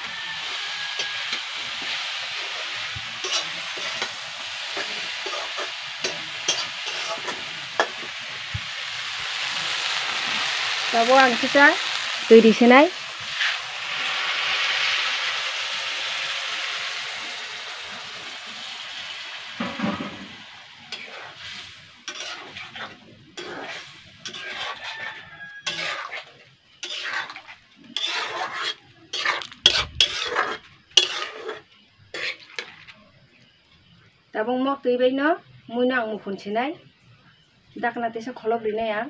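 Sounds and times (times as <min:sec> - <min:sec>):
metal spatula scraping wok: 0:00.0 - 0:16.2, 0:18.0 - 0:33.0
water hissing in hot wok: 0:00.0 - 0:32.9.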